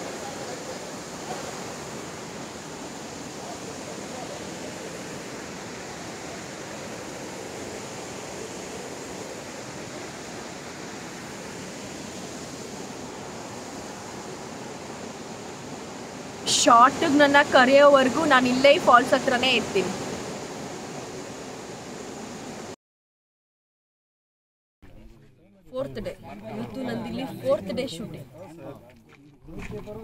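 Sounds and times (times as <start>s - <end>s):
waterfall rushing over rocks: 0.0s - 22.7s.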